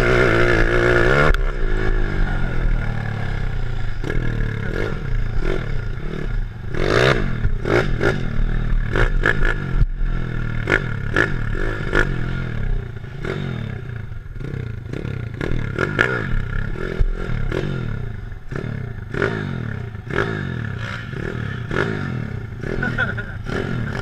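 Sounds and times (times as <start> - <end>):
quad bike engine revving: 0.0 - 24.0.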